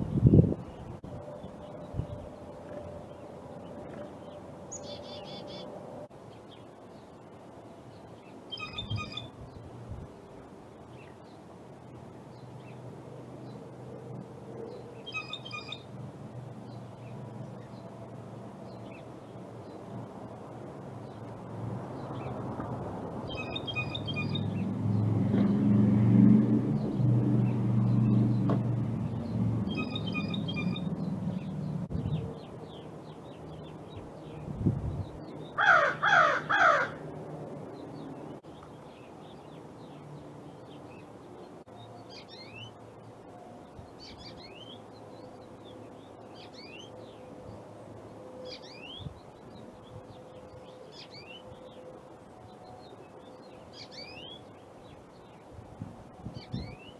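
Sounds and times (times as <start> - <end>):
finch chirping: 8.5 - 9.3, 15.0 - 15.9, 23.3 - 24.6, 28.0 - 34.4
crow cawing: 35.6 - 37.0.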